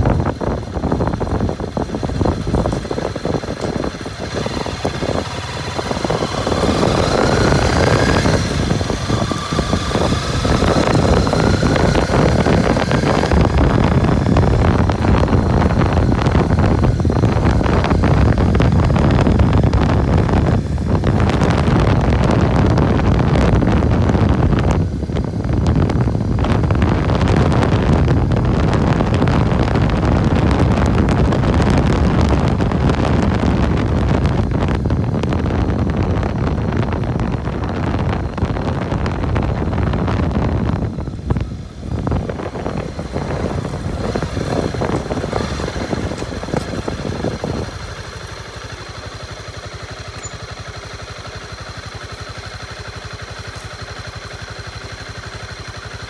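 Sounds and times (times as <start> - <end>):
motorcycle accelerating: 0.0 - 56.0
wind rumbling on microphone: 0.0 - 56.0.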